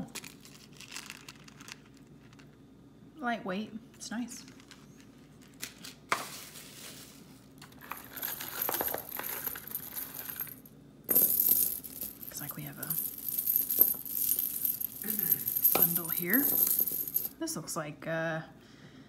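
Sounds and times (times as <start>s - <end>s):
metal chains jingling: 7.9s - 17.3s.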